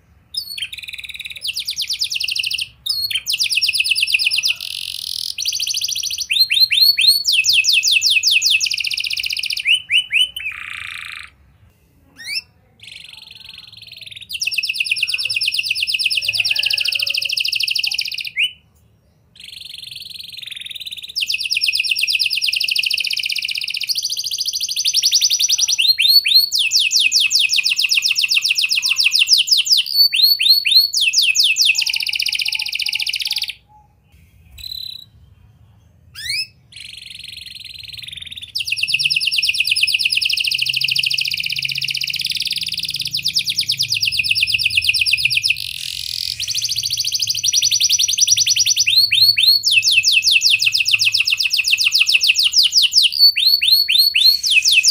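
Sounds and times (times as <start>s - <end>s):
canary singing trills: 0.0s - 54.9s.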